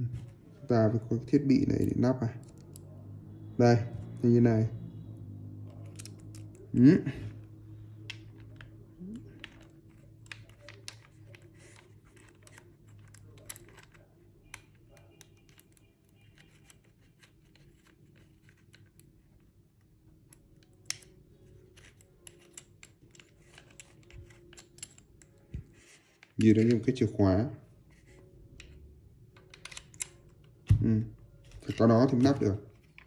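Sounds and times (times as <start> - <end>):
metal parts clicking and scraping: 8.0 - 19.2, 20.3 - 26.9, 28.0 - 30.7.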